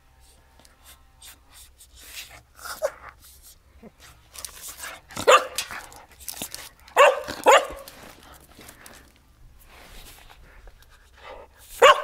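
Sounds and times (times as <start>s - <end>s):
dog barking: 5.2s - 5.8s, 7.0s - 7.9s, 11.8s - 12.0s.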